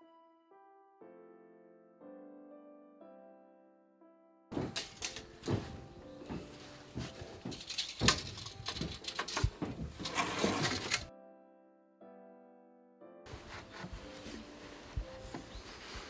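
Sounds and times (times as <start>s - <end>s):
rustling and scraping: 4.5s - 11.1s, 13.3s - 16.0s.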